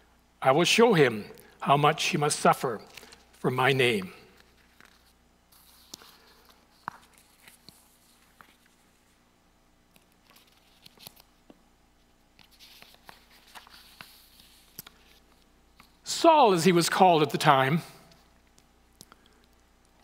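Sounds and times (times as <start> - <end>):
paper sheets rustling: 2.8 - 9.1, 10.2 - 11.2, 12.4 - 16.0.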